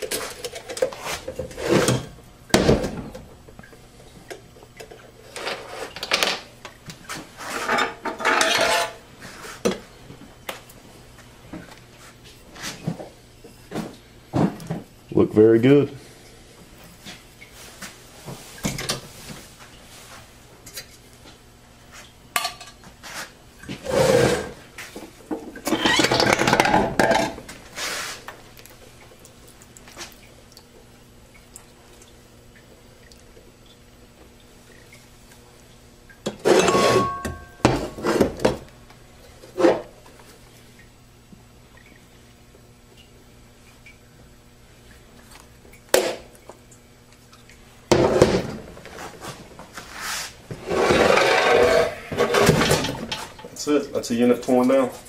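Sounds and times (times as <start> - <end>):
metal plates clinking and clattering: 7.6 - 9.0, 36.4 - 37.7.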